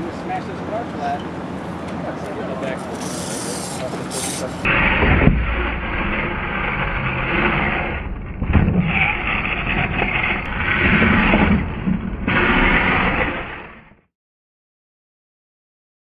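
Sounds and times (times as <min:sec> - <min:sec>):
rc truck motor running: 0:02.8 - 0:14.0
truck landing thump: 0:04.7 - 0:06.5, 0:08.0 - 0:09.1.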